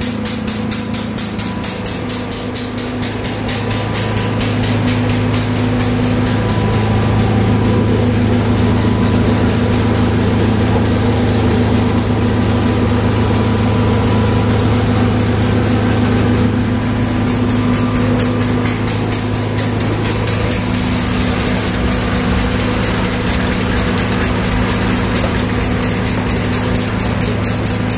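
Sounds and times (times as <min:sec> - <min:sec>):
pump mechanical hum: 0:00.0 - 0:27.9
fast even ticking: 0:18.9 - 0:27.9.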